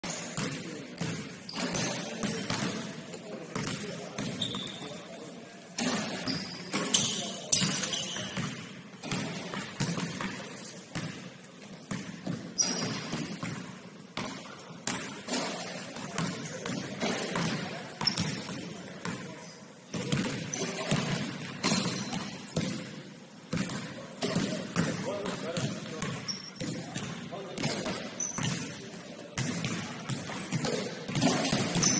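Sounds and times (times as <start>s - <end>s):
basketball bouncing on court: 0.1s - 4.8s, 5.8s - 19.3s, 19.9s - 31.9s
shoe squeaks: 4.3s - 5.0s, 6.2s - 8.4s, 12.5s - 13.1s, 21.6s - 22.7s, 26.2s - 26.6s, 28.1s - 28.5s.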